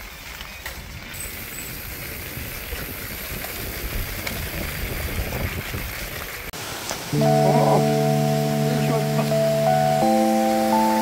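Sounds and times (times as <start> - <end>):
bike tyres rumbling on dirt: 0.0 - 6.5.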